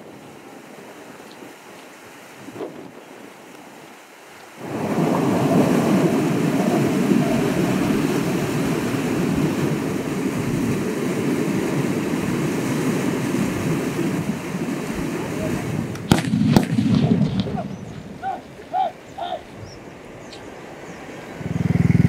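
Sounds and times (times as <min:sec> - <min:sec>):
water rushing and splashing: 0:00.0 - 0:22.0.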